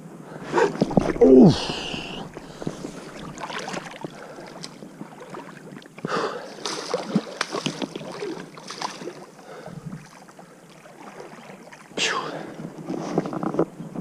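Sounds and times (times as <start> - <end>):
river water splashing: 0.3 - 12.9
loud splash: 0.5 - 4.6.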